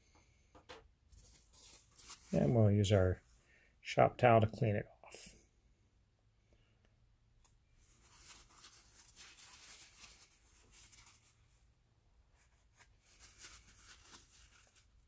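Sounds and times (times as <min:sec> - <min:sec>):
cloth rubbing on metal: 0:01.1 - 0:02.6, 0:07.8 - 0:11.6, 0:12.3 - 0:14.9.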